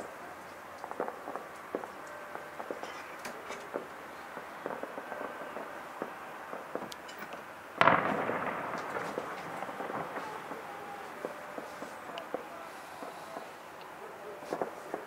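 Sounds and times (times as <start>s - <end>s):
distant firecracker pops: 0.8s - 15.0s
loud firework bang: 7.8s - 13.6s.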